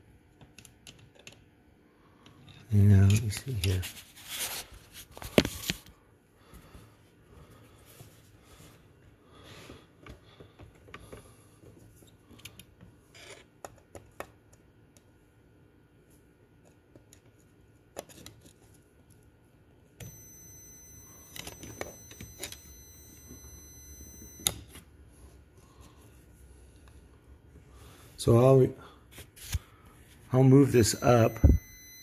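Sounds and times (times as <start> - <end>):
multimeter continuity beep: 20.0 - 24.8, 30.7 - 32.0.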